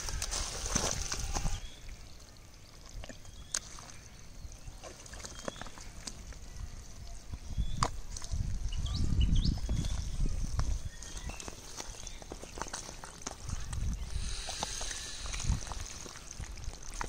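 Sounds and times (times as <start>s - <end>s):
wet mud squelching: 0.0s - 2.0s, 2.7s - 8.8s, 9.5s - 17.0s.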